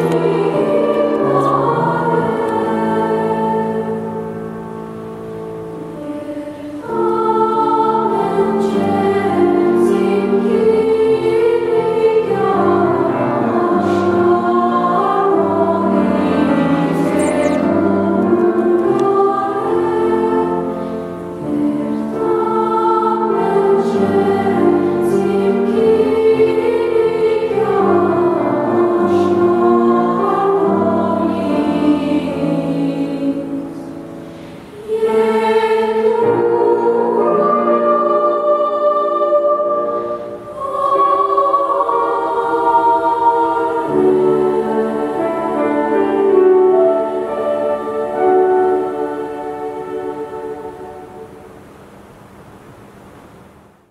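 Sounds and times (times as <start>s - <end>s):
choir singing: 0.0s - 34.0s, 34.7s - 51.5s
piano accompaniment: 0.0s - 38.6s, 39.6s - 51.5s.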